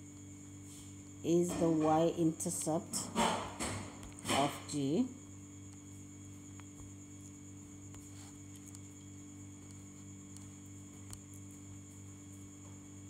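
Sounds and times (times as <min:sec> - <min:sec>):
electrical mains hum: 0:00.0 - 0:13.0.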